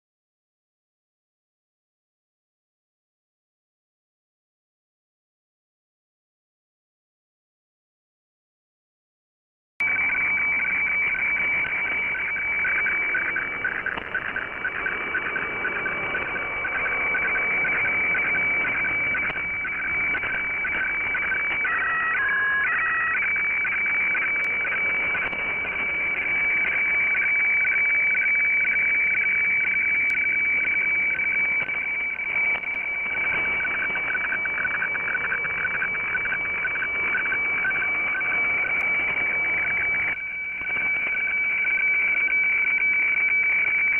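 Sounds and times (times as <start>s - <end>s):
radiofax signal tones: 9.8s - 43.9s.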